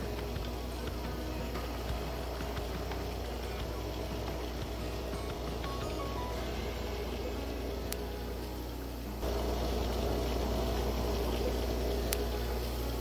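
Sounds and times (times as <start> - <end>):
water trickling and bubbling: 0.0 - 8.0, 8.9 - 13.0
low hum: 0.0 - 13.0.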